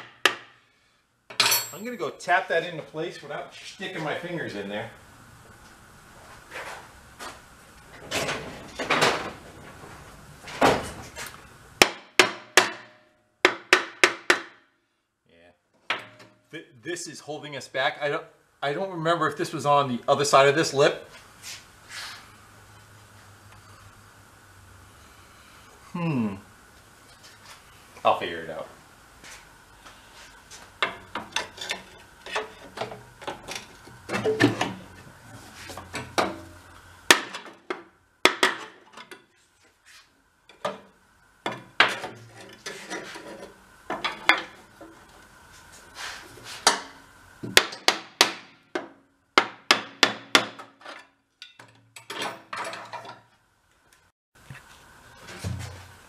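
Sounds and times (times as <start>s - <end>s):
hand tools clanking on metal: 1.3s - 2.1s, 30.8s - 34.8s.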